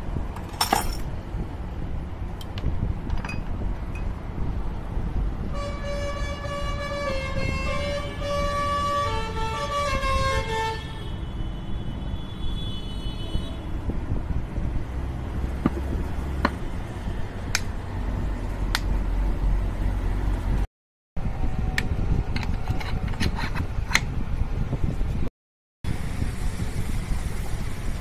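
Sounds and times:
horn-like tune: 5.6 - 11.0.

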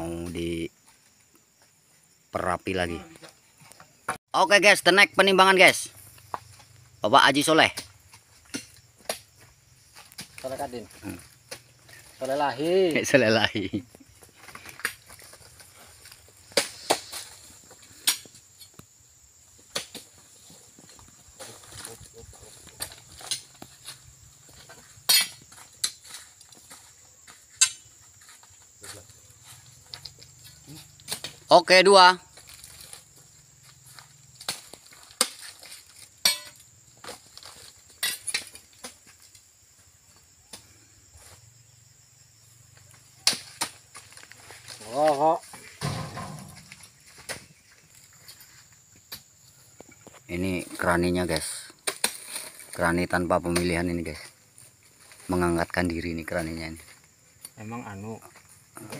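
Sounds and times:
fruit bunches landing with knocks: 44.7 - 47.5.

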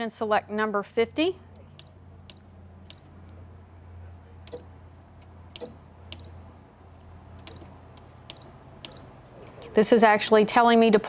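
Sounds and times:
faint steady hum: 0.0 - 11.0
sewing machine keypad beeps: 1.8 - 3.1, 5.6 - 6.5, 7.4 - 9.1.

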